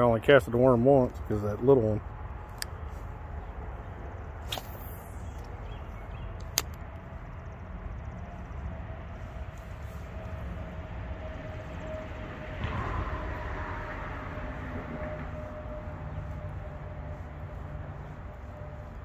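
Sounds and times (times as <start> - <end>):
low outdoor rumble: 0.0 - 19.0
brief swish: 4.4 - 5.4
sharp click: 4.4 - 5.6, 6.4 - 7.0.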